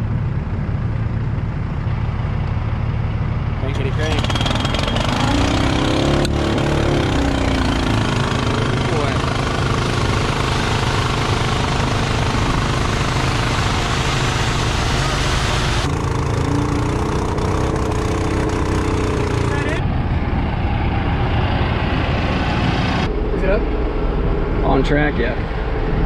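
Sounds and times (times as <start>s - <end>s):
tractor engine running: 0.0s - 26.0s
small gasoline pump engine: 3.6s - 19.8s
liquid gushing through hose: 8.0s - 17.2s.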